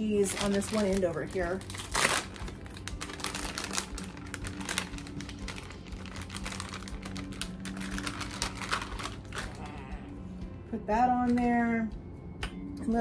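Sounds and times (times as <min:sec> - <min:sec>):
plastic packaging crinkling: 0:00.0 - 0:09.9.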